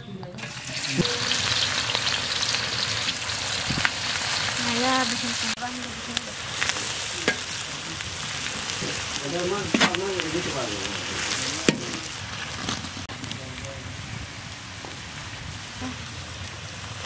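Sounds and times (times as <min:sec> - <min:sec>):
spatula scraping wok: 0:00.4 - 0:13.1
onions sizzling in hot oil: 0:00.4 - 0:17.0.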